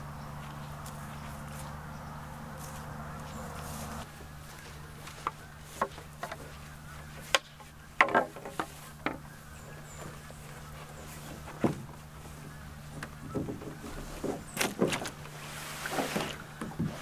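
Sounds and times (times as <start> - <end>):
footsteps through dry grass: 0.0 - 8.0, 8.6 - 17.0
steady low hum: 0.0 - 17.0
canoe knocks and clunks: 5.1 - 10.6, 11.3 - 17.0.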